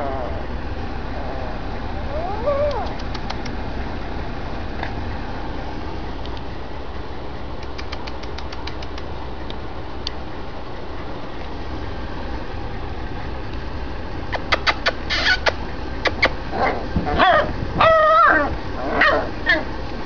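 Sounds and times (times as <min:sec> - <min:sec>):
puppies whining and yipping: 0:00.0 - 0:03.2, 0:14.7 - 0:15.5, 0:16.1 - 0:19.8
sharp clicks: 0:02.6 - 0:03.6, 0:07.6 - 0:10.2.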